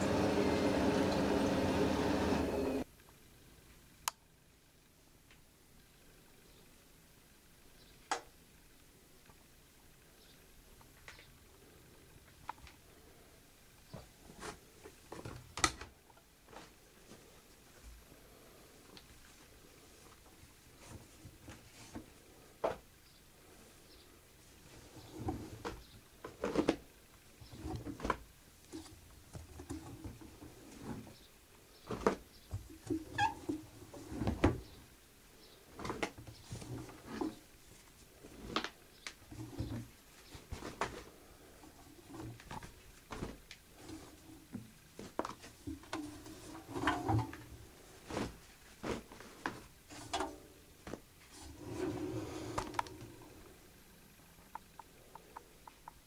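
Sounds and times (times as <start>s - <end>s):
towels rustling: 35.7s - 53.3s.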